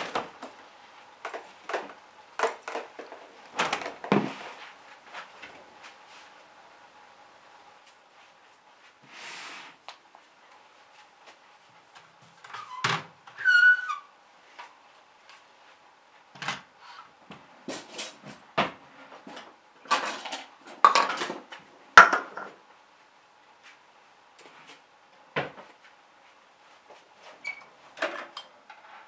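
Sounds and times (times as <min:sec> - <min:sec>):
faint steady hum: 0:00.0 - 0:29.0
containers clattering on countertop: 0:19.9 - 0:21.4.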